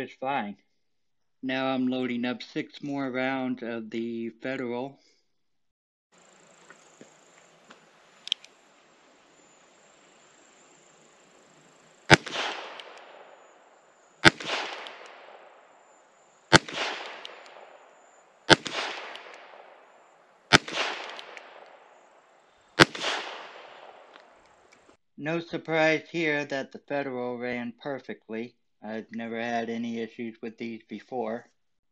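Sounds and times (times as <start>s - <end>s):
revolver shots with echo: 12.1s - 13.5s, 14.2s - 15.9s, 16.5s - 22.1s, 22.8s - 24.1s.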